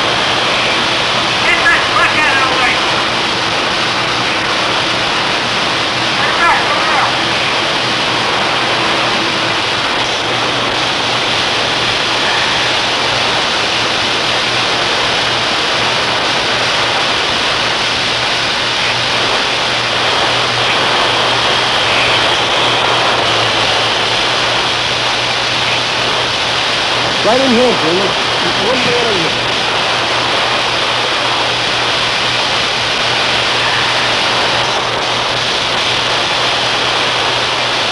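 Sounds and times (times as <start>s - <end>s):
steam hissing: 0.0s - 37.9s.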